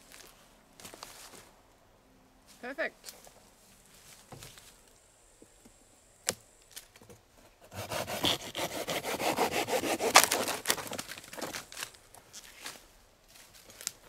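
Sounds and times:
saw cutting rotten wood: 7.7s - 11.6s.

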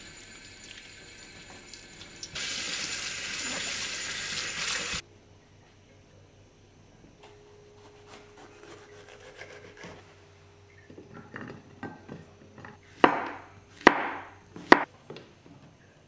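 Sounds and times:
knife chopping on wooden board: 13.0s - 14.9s.

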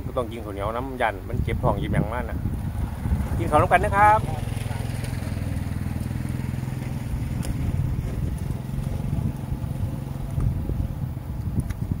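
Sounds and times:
small engine idling: 2.6s - 11.5s.

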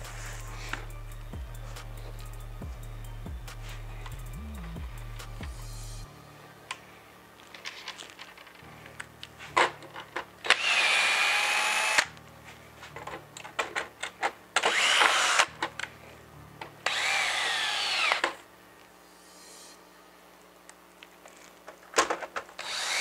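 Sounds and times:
cordless drill motor whine: 10.4s - 12.1s, 14.6s - 15.5s, 16.8s - 18.4s, 22.6s - 23.0s.

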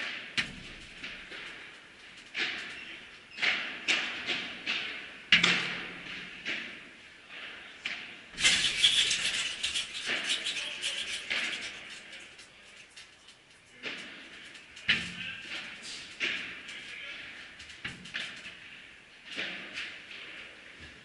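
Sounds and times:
clattering noise: 8.4s - 18.6s.

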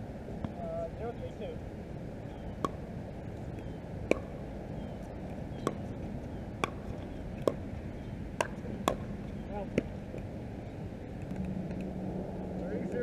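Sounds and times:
paddles hitting plastic ball: 4.0s - 4.4s, 5.5s - 7.7s, 8.4s - 10.3s.

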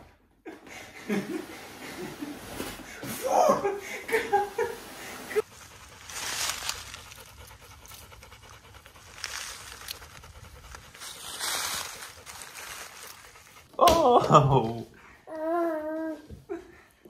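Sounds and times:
people laughing: 0.5s - 2.4s, 3.2s - 5.4s, 14.0s - 14.9s
dog panting: 5.4s - 13.7s.

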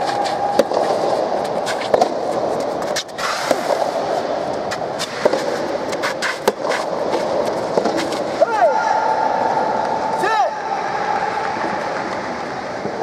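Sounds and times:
rackets hitting tennis ball: 0.0s - 8.5s.

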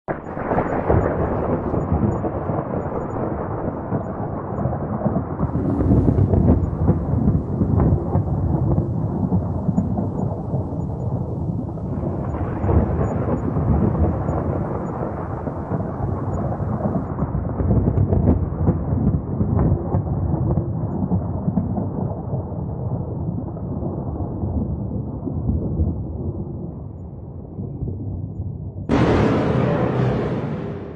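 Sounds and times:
rolling thunder: 0.1s - 22.2s, 28.9s - 30.9s.

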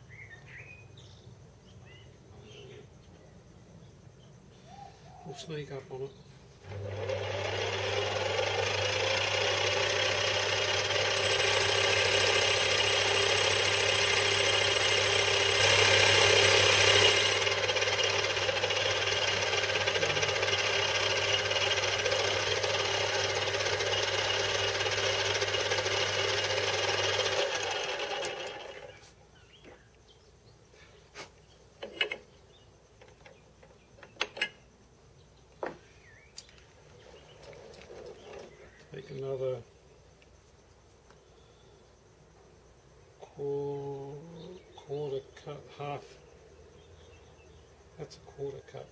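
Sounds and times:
bench lathe cutting: 6.6s - 28.9s.

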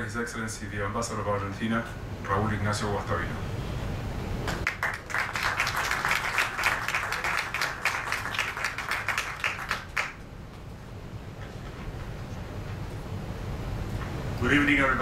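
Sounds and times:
audience applauding: 4.5s - 10.2s.

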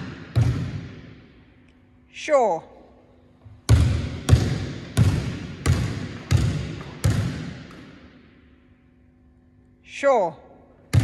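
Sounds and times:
basketball bouncing on wooden floor: 0.0s - 1.1s, 3.6s - 8.1s.

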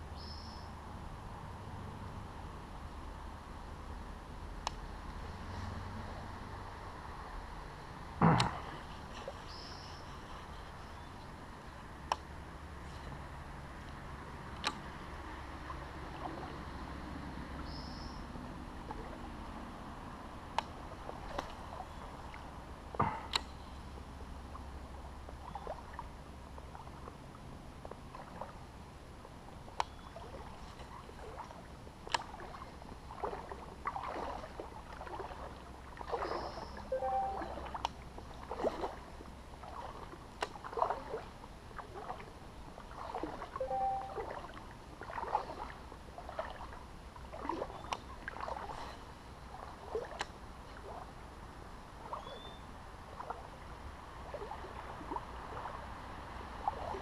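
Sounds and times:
water splashes and drips: 11.8s - 57.0s.

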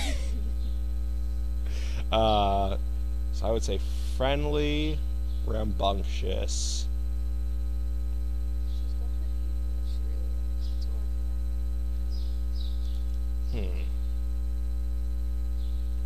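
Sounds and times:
person speaking: 0.0s - 0.5s, 1.7s - 2.8s, 13.5s - 13.9s
electrical mains hum: 0.0s - 16.0s
faint murmured words: 13.5s - 14.0s.

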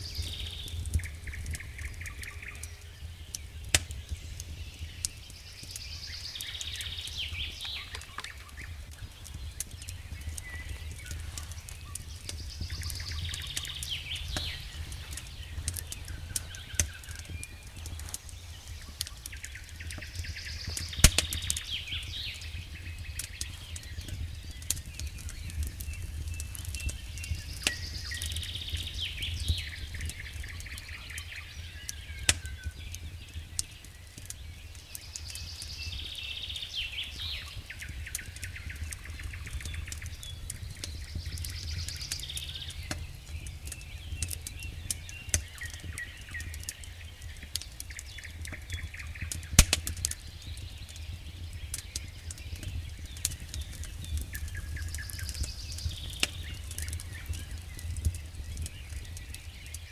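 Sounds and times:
bird singing: 0.0s - 59.9s
campfire crackling and popping: 0.0s - 59.9s
steady low rumble: 8.5s - 30.6s.

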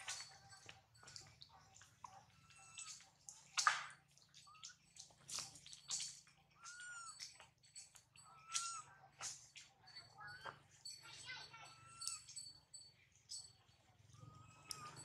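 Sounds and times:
monkey squeaky calls: 2.3s - 3.0s, 6.6s - 7.4s, 8.2s - 9.0s, 9.9s - 12.5s, 14.2s - 15.0s.

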